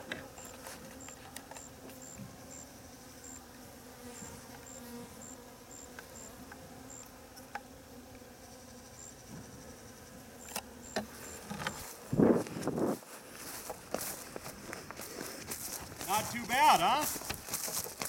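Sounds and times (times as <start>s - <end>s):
insect chirping in high pips: 0.4s - 3.5s, 4.1s - 7.2s, 8.4s - 11.7s.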